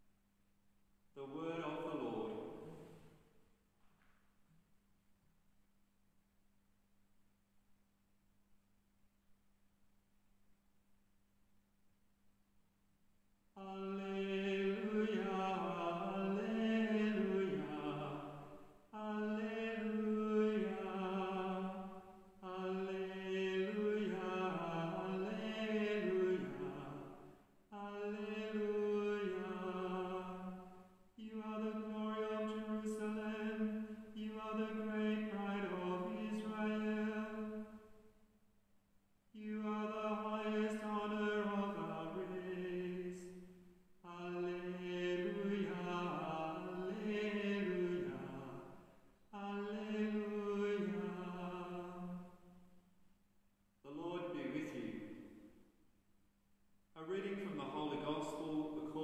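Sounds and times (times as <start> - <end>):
person singing chant: 1.2 - 2.9, 13.6 - 37.7, 39.4 - 52.4, 53.9 - 55.2, 57.0 - 59.0.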